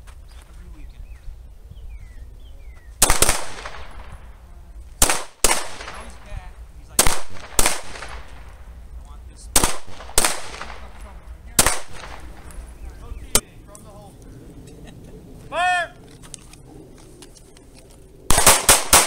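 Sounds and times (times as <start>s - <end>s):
pistol shots with echo: 3.0s - 8.8s, 9.5s - 13.4s, 18.3s - 19.0s.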